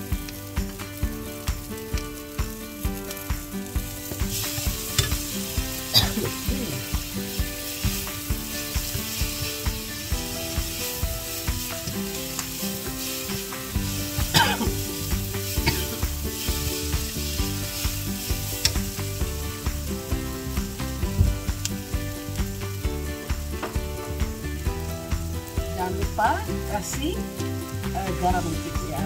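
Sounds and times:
background music: 0.0 - 29.0
food sizzling in a frying pan: 0.0 - 29.0
spatula scraping a pan: 4.0 - 18.8.

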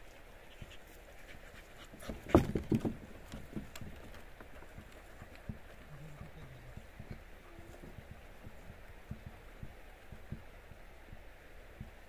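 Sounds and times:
knocks on wooden planks: 2.0 - 5.7, 7.8 - 10.5
dog panting: 4.5 - 7.8.

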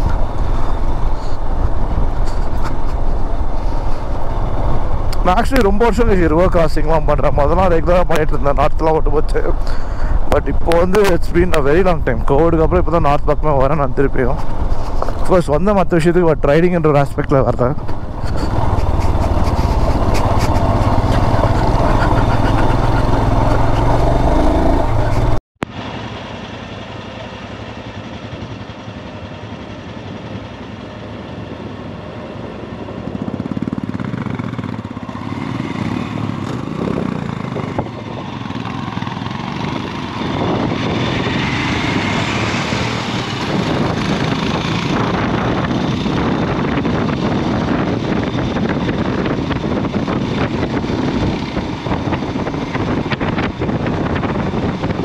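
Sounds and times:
wind noise on microphone: 17.8 - 25.4, 35.8 - 55.0
motorcycle engine running: 17.8 - 55.0.

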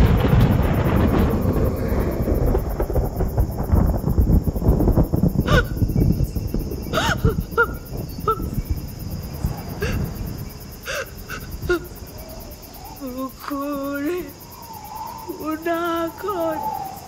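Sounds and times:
high insect drone: 0.0 - 17.0
long wavering pitched calls: 10.9 - 17.0.

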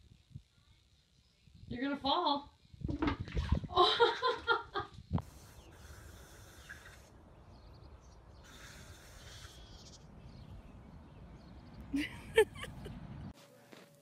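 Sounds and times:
hiss: 5.2 - 7.1, 8.4 - 9.6.

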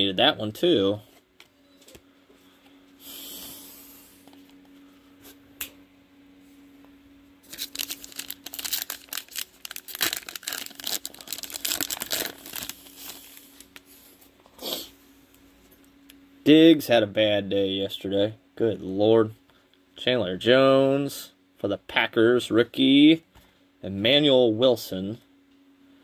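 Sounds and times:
plastic wrapper tearing: 7.4 - 13.8
plastic wrapper crackling: 7.4 - 13.9.

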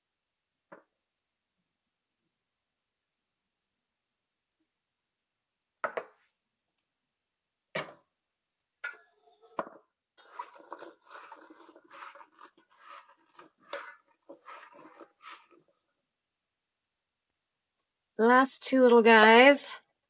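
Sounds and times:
salt pouring into bowl: 10.2 - 15.7.

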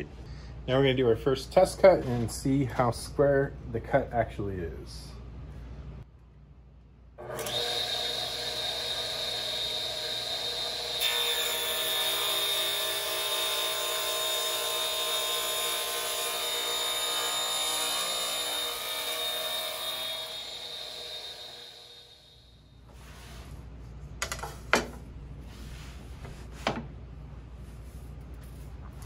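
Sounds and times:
saw blade cutting wood: 7.2 - 22.4
saw motor whining: 7.2 - 22.5.

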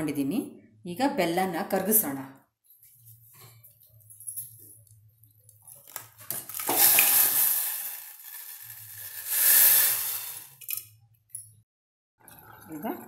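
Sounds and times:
water pouring: 5.6 - 10.9, 12.2 - 13.0.

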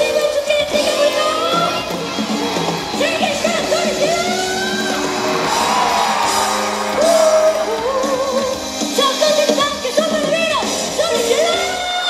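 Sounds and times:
band backing track: 0.0 - 12.0
woman singing into microphone: 7.0 - 12.0.

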